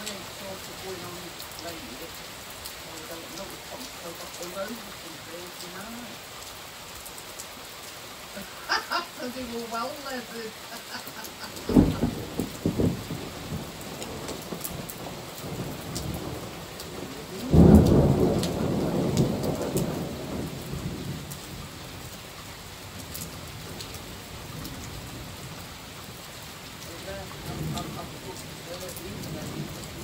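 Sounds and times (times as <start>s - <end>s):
heavy rain falling: 0.0s - 30.0s
thunder clap rumbling: 11.5s - 21.7s, 27.4s - 30.0s.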